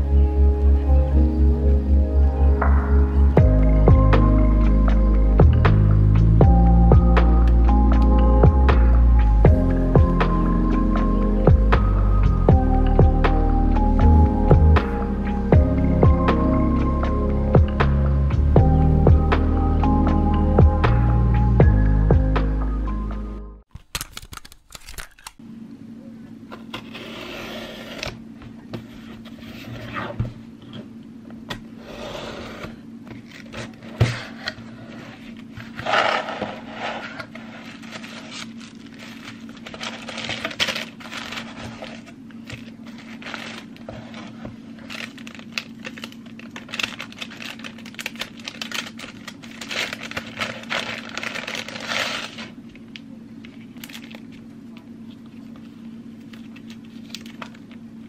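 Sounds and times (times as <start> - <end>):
steady low hum: 0.0 - 23.7, 25.1 - 58.0
cardboard and paper rustling: 32.2 - 52.6, 53.5 - 57.8.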